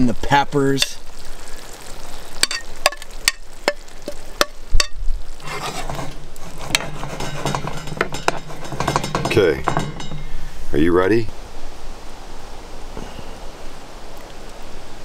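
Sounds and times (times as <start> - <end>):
sauce sizzling: 0.0 - 10.8.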